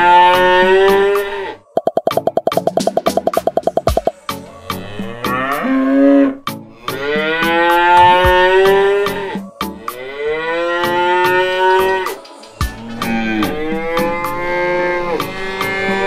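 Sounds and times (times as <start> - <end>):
cows mooing: 4.5 - 12.0, 12.8 - 16.0.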